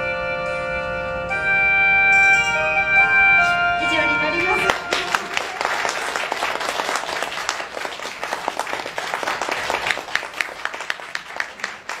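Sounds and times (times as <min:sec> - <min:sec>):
audience applauding: 0:04.4 - 0:12.0.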